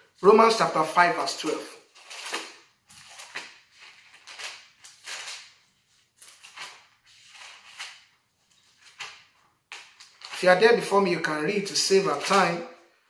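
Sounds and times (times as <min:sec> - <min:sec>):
paper pages rustling: 0:01.8 - 0:10.6, 0:11.6 - 0:12.6.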